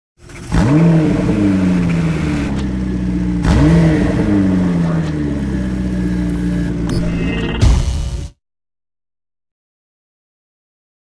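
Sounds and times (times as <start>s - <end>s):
sports car engine revving: 0.2s - 7.0s.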